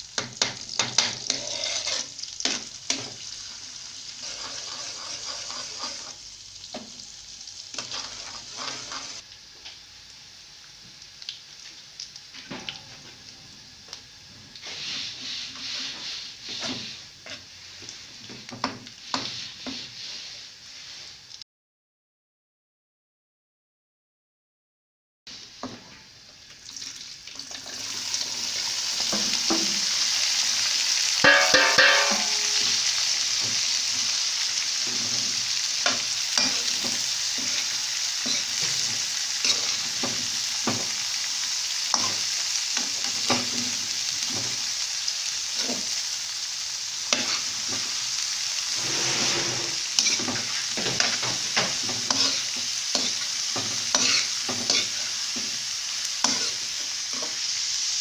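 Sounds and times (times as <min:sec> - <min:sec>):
vegetables sizzling in oil: 0:00.0 - 0:21.4, 0:25.3 - 0:58.0
spatula scraping metal pan: 0:01.0 - 0:03.1, 0:04.1 - 0:06.2, 0:07.7 - 0:09.2, 0:31.2 - 0:32.8, 0:35.8 - 0:40.2, 0:47.1 - 0:47.9, 0:48.7 - 0:55.1, 0:56.2 - 0:57.4.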